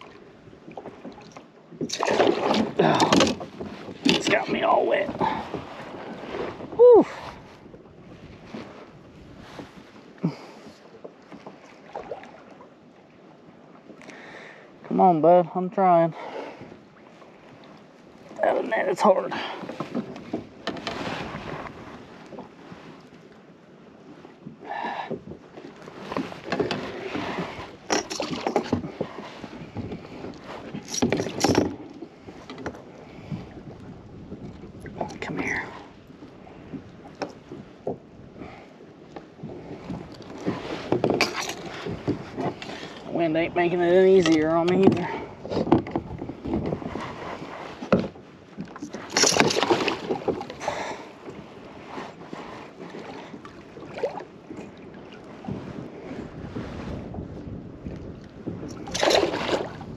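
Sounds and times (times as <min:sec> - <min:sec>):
water slapping against kayak: 0:00.0 - 0:59.9
wind buffeting microphone: 0:01.8 - 0:10.8, 0:24.4 - 0:59.9.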